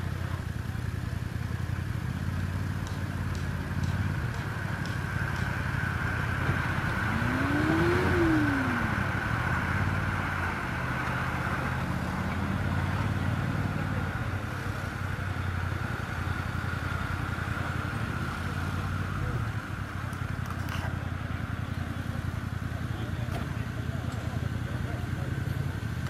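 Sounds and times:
off-road engines running: 0.0s - 26.0s
engine revving: 2.8s - 14.1s.

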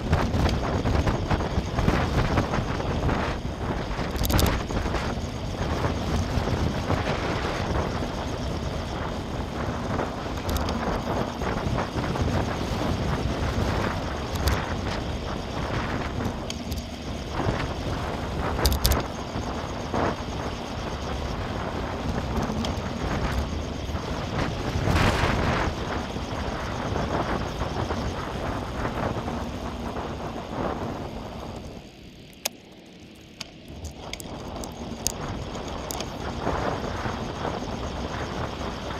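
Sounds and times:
wind rushing over microphone: 0.0s - 32.4s, 33.2s - 38.9s
tyres rolling on tarmac: 0.0s - 38.9s
sharp clicks and rattles: 0.1s - 9.2s, 9.9s - 17.8s, 18.4s - 19.5s, 31.4s - 36.6s.

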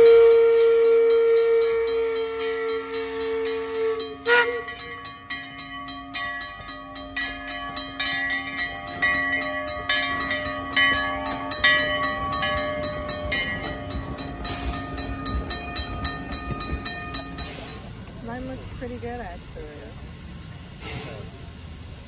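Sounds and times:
crossing signal bell ringing: 0.0s - 19.7s
locomotive bell ringing: 0.0s - 20.6s
steam locomotive rolling past: 0.0s - 22.0s.

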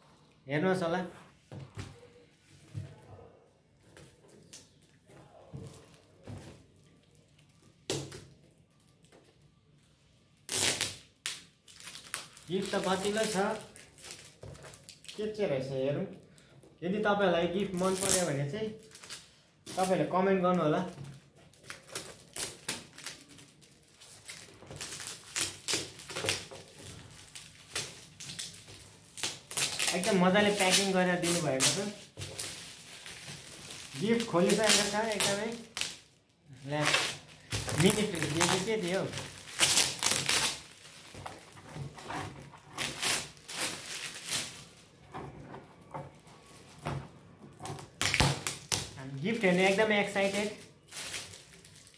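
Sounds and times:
metallic wrapping paper crinkling: 11.7s - 15.1s, 21.1s - 45.1s, 47.8s - 51.9s.

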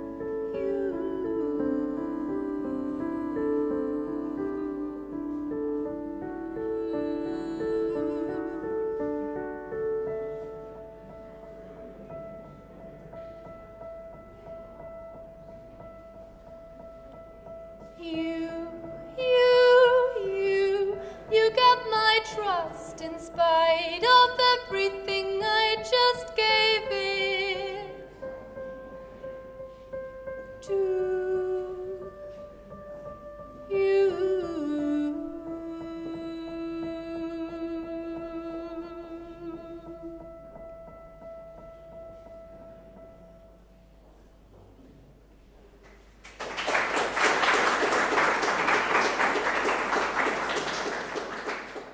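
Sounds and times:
woman singing with vibrato: 0.0s - 9.3s, 18.0s - 28.2s, 30.6s - 32.3s, 33.7s - 40.4s
digital piano chords: 0.0s - 45.4s
people applauding: 45.9s - 51.9s.

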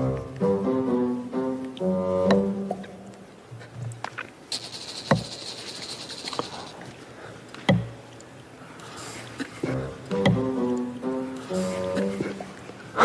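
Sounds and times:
hissing rapid rattle: 4.5s - 6.8s
sharp knocks: 7.6s - 7.9s, 10.1s - 10.5s.

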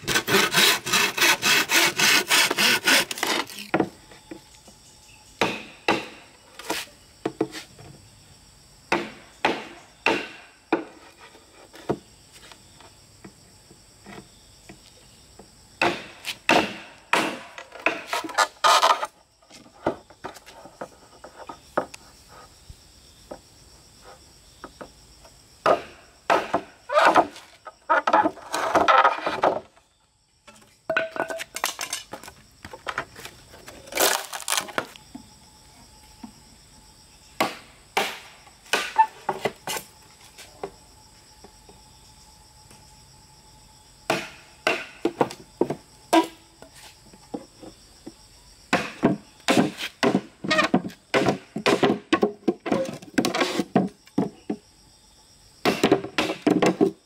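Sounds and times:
insect drone: 0.0s - 57.0s
machete knocking into bamboo: 15.8s - 18.3s, 37.4s - 39.8s, 44.1s - 46.4s, 48.7s - 54.3s, 55.6s - 56.9s
bamboo cracking: 33.6s - 35.1s.

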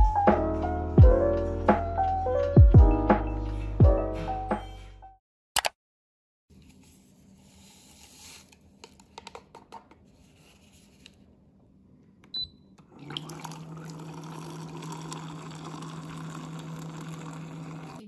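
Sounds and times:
water pouring into glass: 12.8s - 18.0s.

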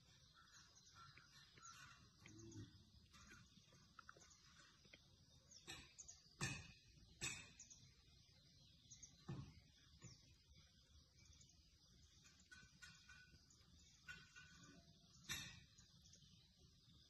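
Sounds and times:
faint outdoor background: 0.0s - 17.0s.

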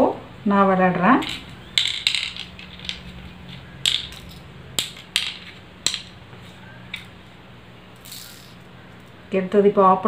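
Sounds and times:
shells clicking on wooden board: 1.2s - 6.2s.

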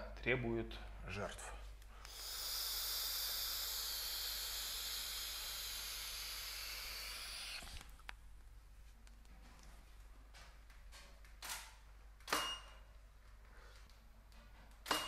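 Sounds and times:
vape puff hiss: 2.0s - 7.9s.

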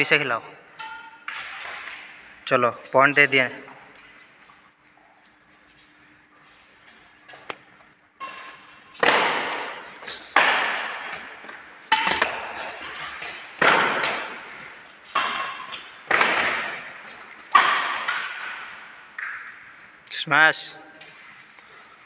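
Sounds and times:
racket hitting shuttlecock: 0.8s - 2.2s, 8.2s - 19.6s.

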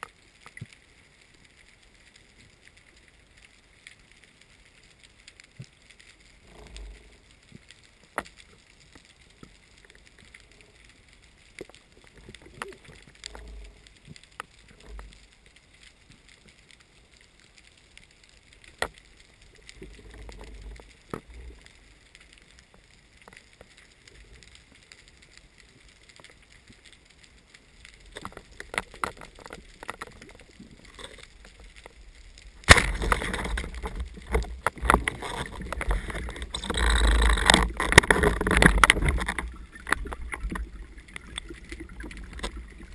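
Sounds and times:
faint underwater clicks: 0.0s - 42.9s
low water rumble: 0.0s - 42.9s
churning water: 32.6s - 42.9s
speargun firing: 32.7s - 33.2s.

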